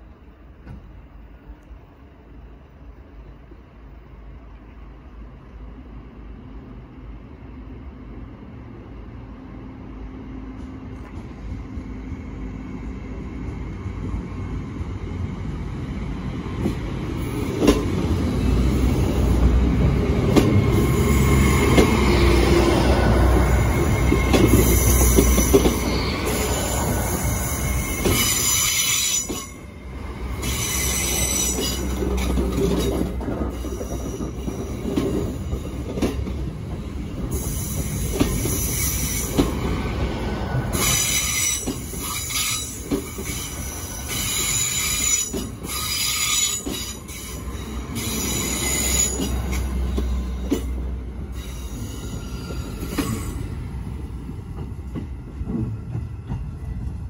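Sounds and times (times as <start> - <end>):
train rumble: 0.0 - 57.0
high-pitched brake squealing: 23.7 - 29.7, 30.4 - 32.0, 37.3 - 39.4, 40.8 - 50.7, 51.3 - 53.5.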